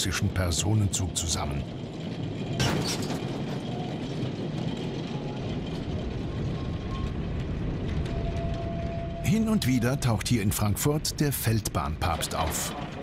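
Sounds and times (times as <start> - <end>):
train rolling on rails: 0.0 - 13.0
metallic clanking and rattling: 1.7 - 9.0.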